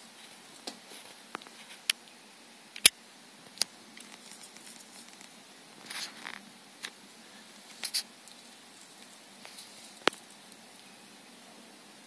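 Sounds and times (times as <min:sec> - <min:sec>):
low hiss: 0:00.0 - 0:12.0.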